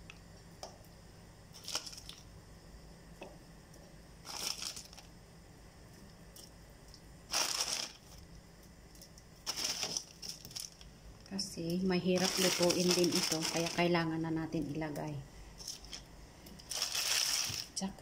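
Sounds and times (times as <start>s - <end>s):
plastic bag crinkling: 1.6s - 2.2s, 4.2s - 5.1s, 7.3s - 8.2s, 9.4s - 10.9s, 12.0s - 14.1s, 15.6s - 17.8s.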